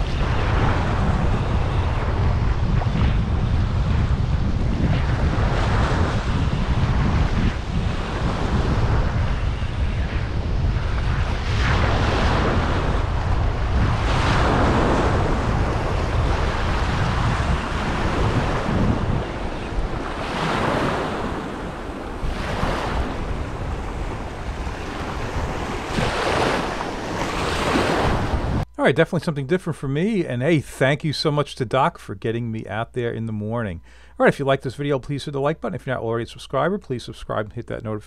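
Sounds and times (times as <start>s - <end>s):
wind rumble on microphone: 0.0s - 28.8s
small waves breaking on beach: 11.3s - 28.6s.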